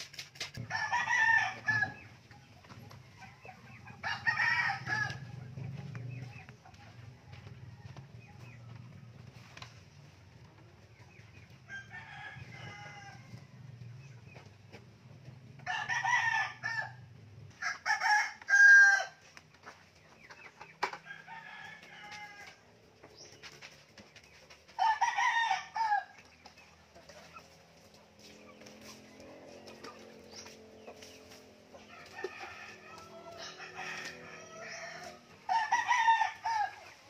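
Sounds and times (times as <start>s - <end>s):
roosters crowing: 0.6s - 2.3s, 3.0s - 6.3s, 11.5s - 14.1s, 15.2s - 19.3s, 20.9s - 22.9s, 24.7s - 26.3s, 27.3s - 37.0s.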